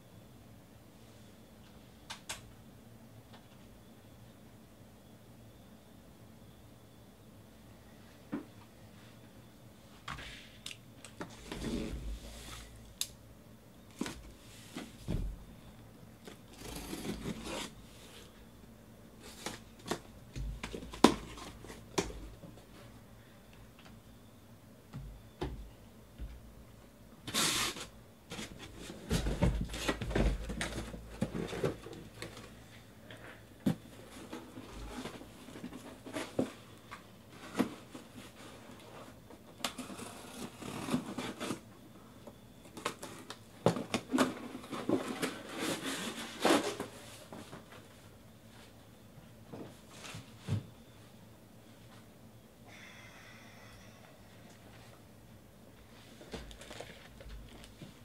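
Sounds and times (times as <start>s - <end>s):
cardboard tearing: 16.5s - 17.7s.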